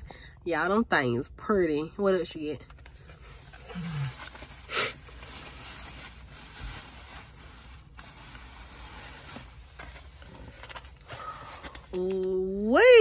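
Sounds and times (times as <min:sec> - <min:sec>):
plastic bag and trays rustling: 0:02.7 - 0:12.2.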